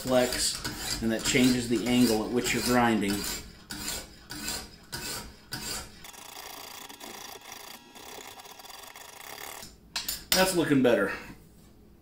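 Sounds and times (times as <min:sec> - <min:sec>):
sharpening stone rasping on knife: 0:00.2 - 0:05.9.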